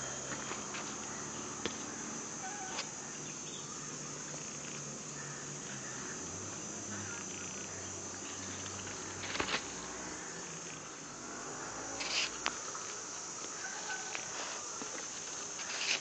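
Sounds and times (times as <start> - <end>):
high insect chorus: 0.0 - 16.0.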